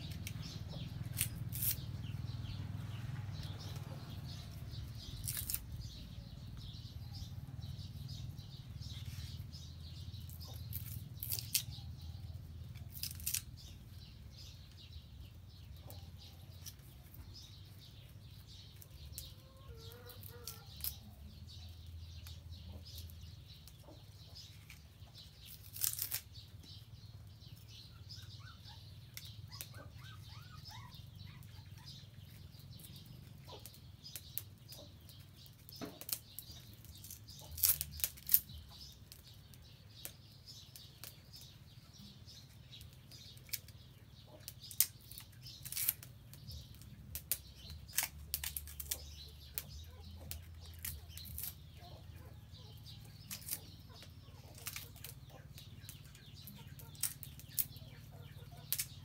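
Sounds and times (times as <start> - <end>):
wood fire crackling: 24.4 - 26.6, 32.4 - 41.8, 42.4 - 51.8, 58.7 - 59.0
faint bird chirps: 27.5 - 33.7.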